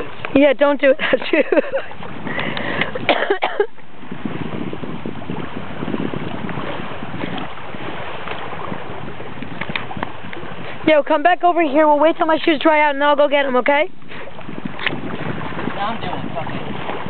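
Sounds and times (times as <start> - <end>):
water lapping among rocks: 0.0 - 17.0
wind on microphone: 0.0 - 17.0.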